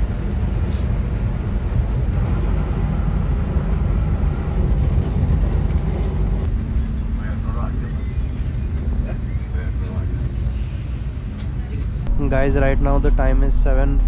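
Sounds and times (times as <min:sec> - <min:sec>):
coach engine and road noise: 0:00.0 - 0:14.0.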